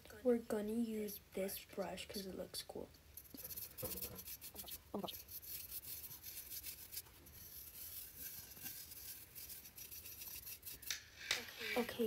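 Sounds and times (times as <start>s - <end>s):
scratchy brush strokes: 3.2s - 12.0s.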